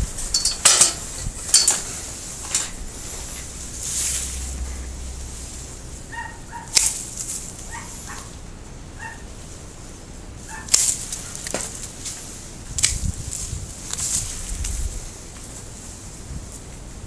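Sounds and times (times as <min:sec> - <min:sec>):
pruning shears snipping branches: 0:06.2 - 0:08.2, 0:10.5 - 0:14.8.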